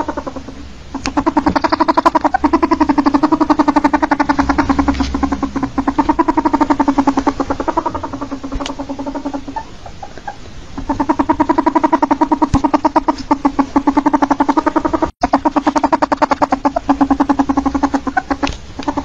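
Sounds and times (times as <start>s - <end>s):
ferret clucking: 0.0s - 19.0s.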